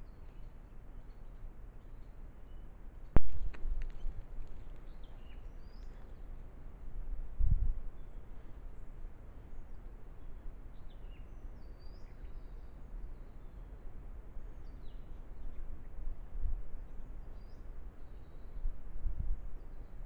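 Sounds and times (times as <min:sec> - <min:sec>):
small birds chirping: 0:00.0 - 0:06.4, 0:08.0 - 0:13.8.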